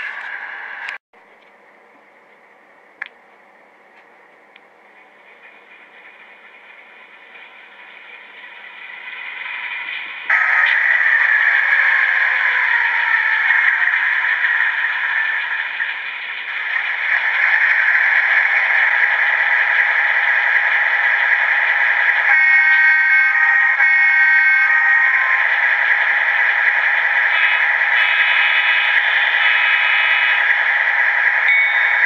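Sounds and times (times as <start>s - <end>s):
tinny model diesel engine sound: 2.4s - 32.0s
model train horn: 22.3s - 24.8s.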